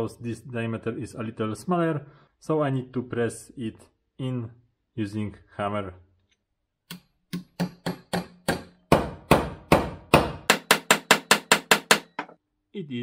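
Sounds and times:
hammer striking metal: 6.9 - 12.4.

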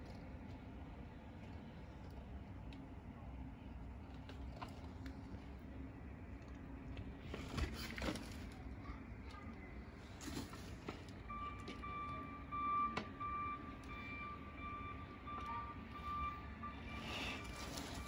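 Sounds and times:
vehicle back-up alarm beeping: 11.2 - 18.0.

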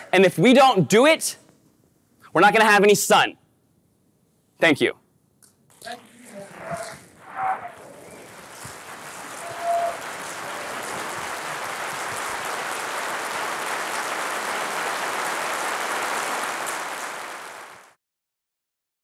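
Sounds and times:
audience applauding: 6.5 - 18.0.

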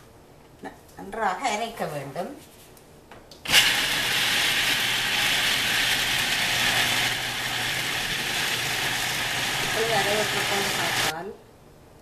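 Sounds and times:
food processor motor chopping: 3.5 - 11.1.

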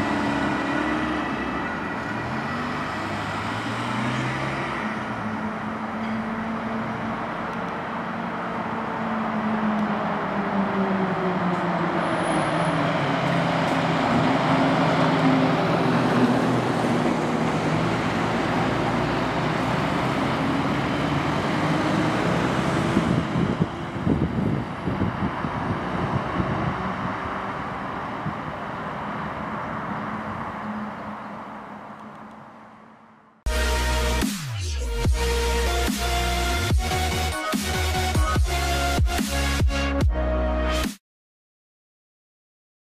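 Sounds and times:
heavy diesel engines passing: 0.0 - 34.2, 34.8 - 39.6.

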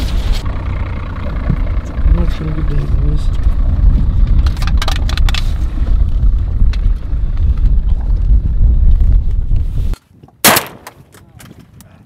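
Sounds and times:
wind buffeting microphone: 1.3 - 12.0
loud shotgun blast: 10.4 - 11.0.

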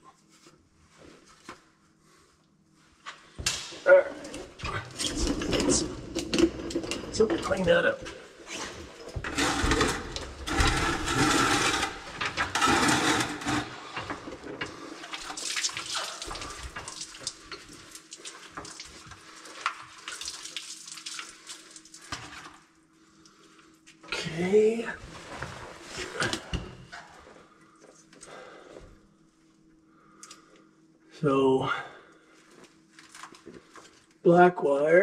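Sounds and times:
water splashing and dripping: 15.0 - 22.1.

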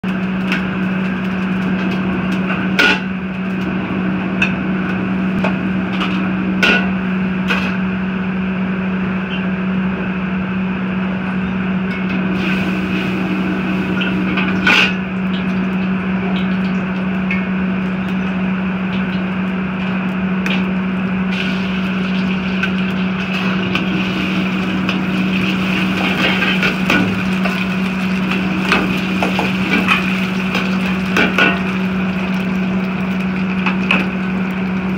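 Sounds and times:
gas burner roaring: 0.0 - 34.9
egg sizzling in hot oil: 19.9 - 34.9.

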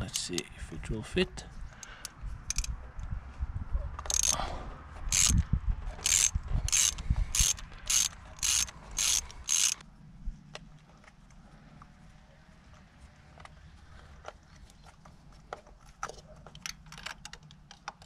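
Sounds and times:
socket ratchet clicking: 1.8 - 2.7, 4.0 - 4.4, 5.1 - 9.8.

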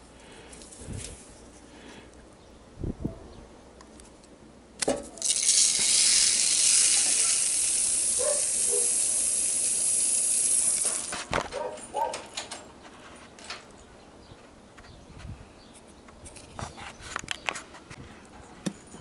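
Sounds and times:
beads clicking: 5.2 - 11.2
granules pouring into plastic bowl: 5.2 - 11.2.

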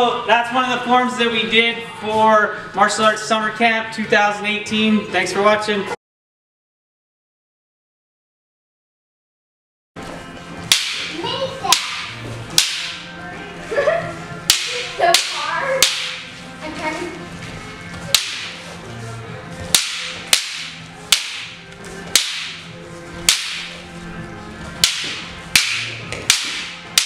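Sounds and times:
wooden staffs clacking: 10.7 - 13.1, 14.5 - 16.4, 18.1 - 18.8, 19.6 - 23.9, 24.8 - 27.0.

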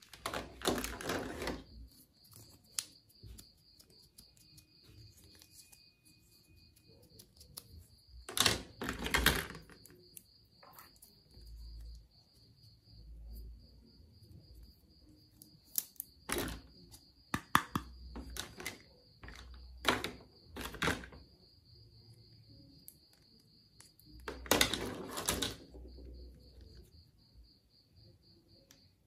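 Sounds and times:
clatter of plastic: 0.0 - 1.6, 8.3 - 9.8, 16.3 - 16.6, 18.1 - 21.2, 24.2 - 25.7
plastic toy pieces clicking: 8.3 - 10.1, 17.4 - 21.2.

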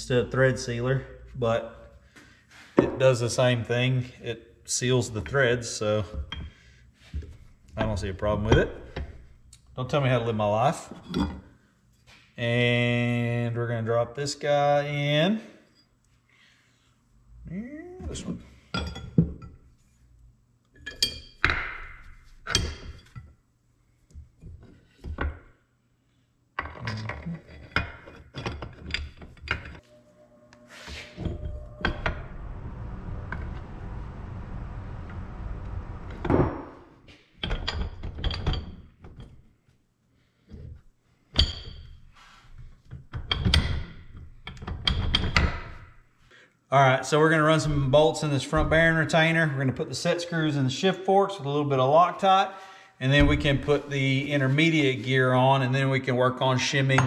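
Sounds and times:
metal parts clunking and clinking: 26.6 - 29.8, 37.4 - 39.5.

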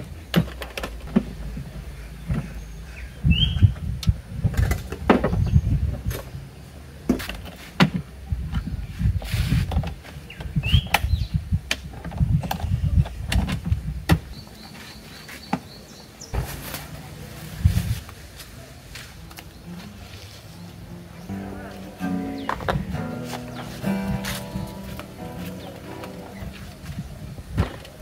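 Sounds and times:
plastic crate lid flipping: 16.4 - 16.9.

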